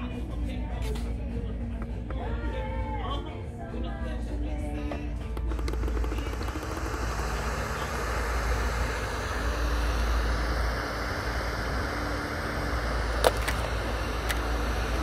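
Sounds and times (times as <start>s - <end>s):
radio static hiss: 5.5s - 15.0s.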